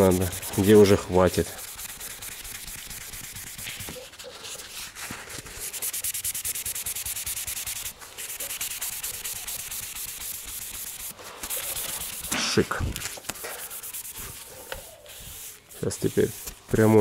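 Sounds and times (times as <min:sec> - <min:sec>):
sandpaper sanding by hand: 0:00.0 - 0:17.0.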